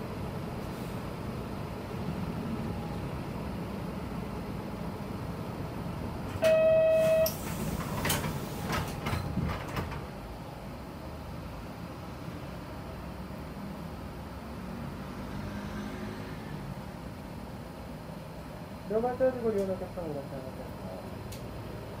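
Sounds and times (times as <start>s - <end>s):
bus engine idling: 0.0s - 14.6s, 16.7s - 22.0s
bus door mechanism clunking: 6.2s - 10.2s
loud warning beep: 6.4s - 7.4s.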